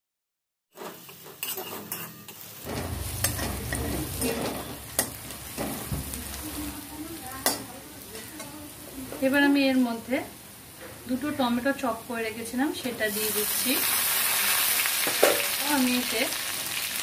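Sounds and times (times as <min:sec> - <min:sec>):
spatula scraping pan: 0:00.7 - 0:06.8
onions sizzling in oil: 0:00.7 - 0:17.0.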